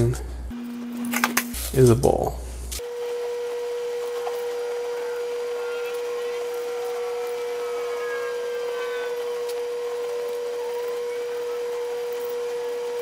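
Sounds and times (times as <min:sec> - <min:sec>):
gliding whistle-like tones: 0:04.3 - 0:13.0.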